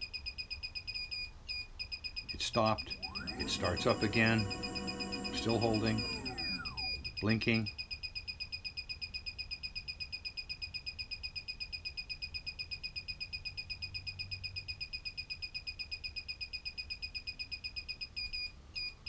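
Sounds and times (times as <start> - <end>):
rapid high beeps: 1.9 - 7.8.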